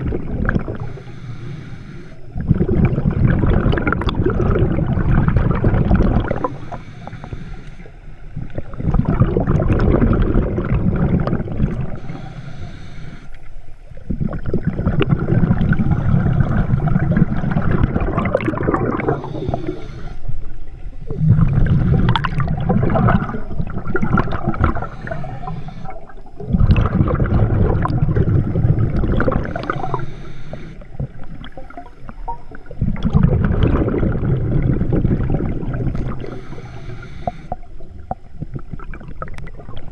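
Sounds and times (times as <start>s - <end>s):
gurgling exhaled bubbles: 0.0s - 7.4s, 8.3s - 12.8s, 13.9s - 39.9s
diver breathing through regulator: 0.7s - 3.6s, 6.2s - 8.3s, 10.8s - 13.6s, 18.6s - 20.4s, 24.2s - 26.5s, 28.5s - 31.2s, 35.9s - 37.7s.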